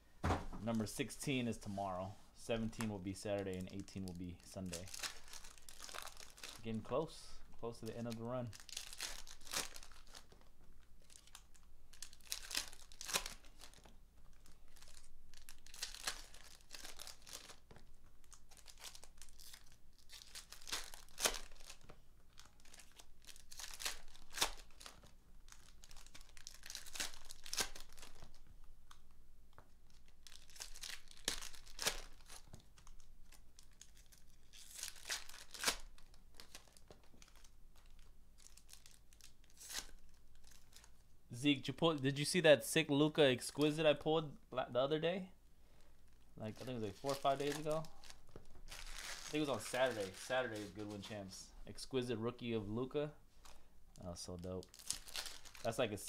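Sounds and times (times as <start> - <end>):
foil packs tearing and crinkling: 7.9 - 10.4, 11.0 - 17.7, 18.3 - 28.4, 29.9 - 40.9, 46.5 - 51.0, 54.6 - 55.9.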